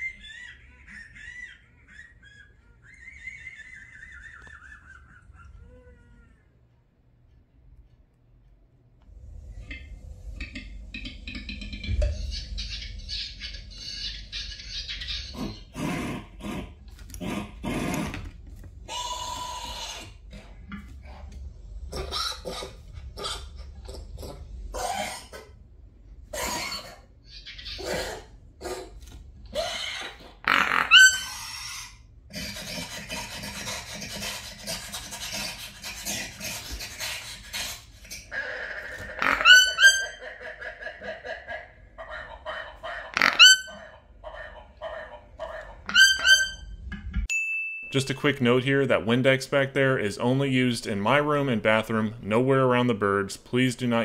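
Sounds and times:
recorded dinosaur growls: 15.3s - 25.6s
toucan yelping calls: 29.6s - 32.0s, 38.4s - 41.1s, 42.1s - 46.7s.

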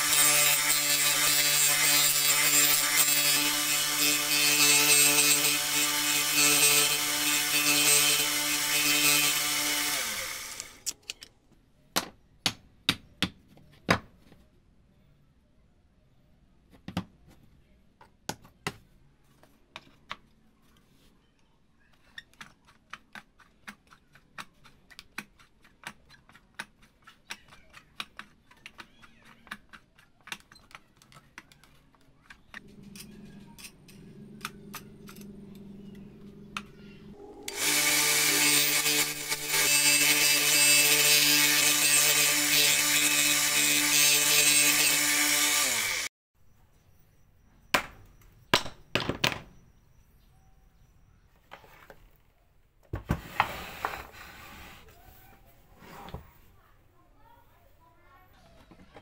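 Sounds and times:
disc sander running: 5.6s - 10.8s, 34.2s - 46.1s
wood grinding against sanding disc: 32.6s - 46.1s.

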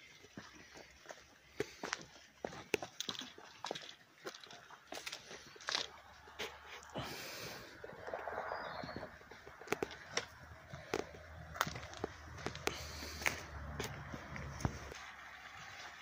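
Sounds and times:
footsteps on a path: 0.0s - 16.0s
wind on microphone: 7.8s - 10.0s.

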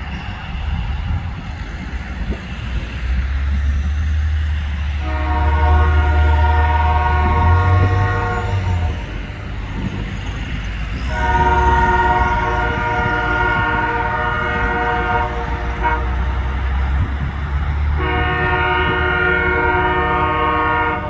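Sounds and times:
locomotive air horn blasts: 5.0s - 9.2s, 11.0s - 16.7s, 18.0s - 21.0s.

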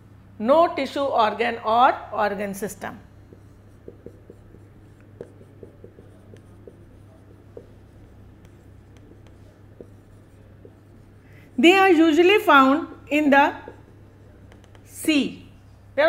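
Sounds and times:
low steady hum: 0.0s - 16.0s
marker pen writing on whiteboard: 3.0s - 15.7s.

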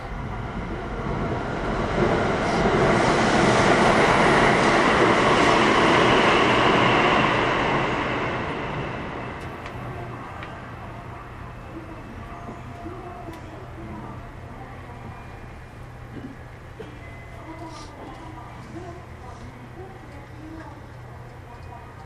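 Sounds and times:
train passing at speed: 0.0s - 22.0s.

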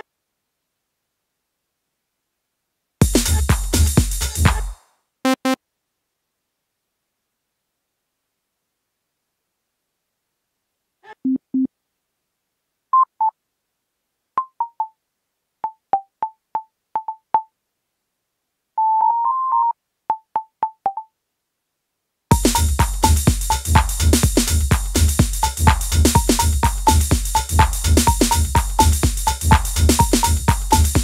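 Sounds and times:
electronic pattern with pulsing bass: 3.0s - 4.7s, 22.3s - 31.0s.

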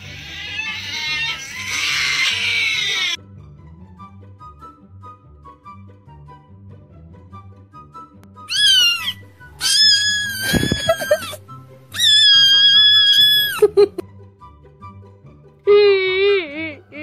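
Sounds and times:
cat meowing: 0.0s - 3.2s, 8.5s - 13.6s
quiet background music: 0.0s - 17.0s.

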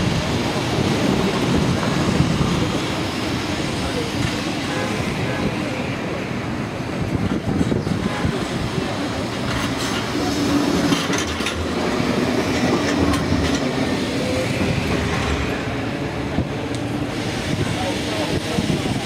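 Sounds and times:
tram passing close: 0.0s - 19.0s
tram rumbling along track: 0.0s - 19.0s
wheels clicking over rail joints: 9.2s - 13.9s.

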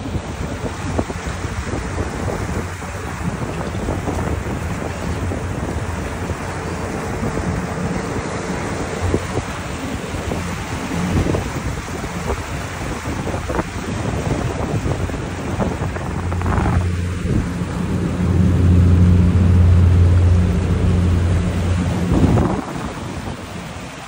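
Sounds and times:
motorboat engine humming: 0.0s - 24.0s
water noise: 0.0s - 24.0s
wind rushing: 11.1s - 23.8s.

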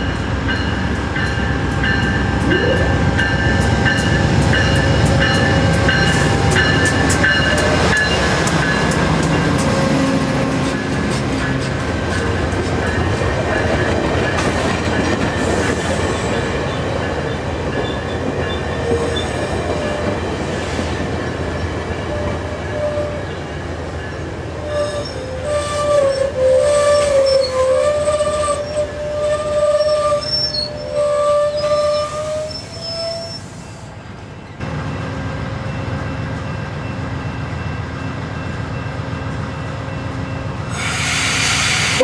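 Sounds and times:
train wheels rumbling on rail: 0.0s - 42.0s
wheels squealing: 24.6s - 33.8s.

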